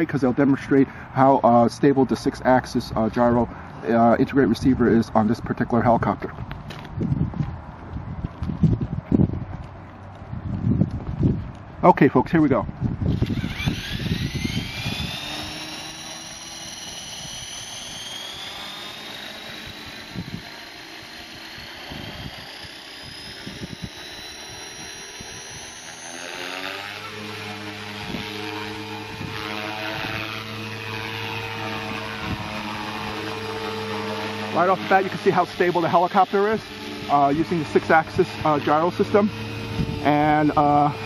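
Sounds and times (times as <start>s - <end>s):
low rotor drone: 0.0s - 41.0s
electric motor whine rising: 13.0s - 41.0s.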